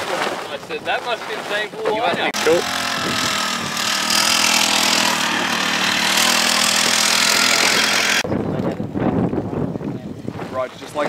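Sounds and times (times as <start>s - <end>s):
small two-stroke engine buzzing: 2.3s - 8.2s.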